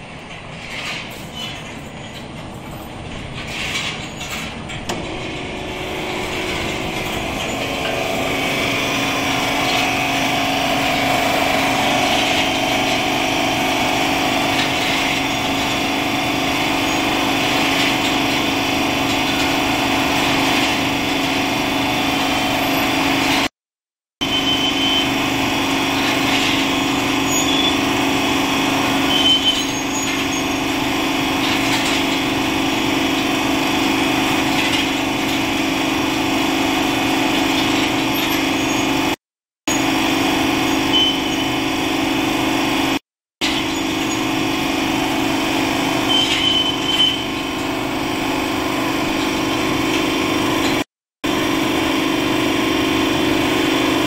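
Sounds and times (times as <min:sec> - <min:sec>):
machinery humming: 0:04.6 - 0:23.3, 0:43.5 - 0:54.0.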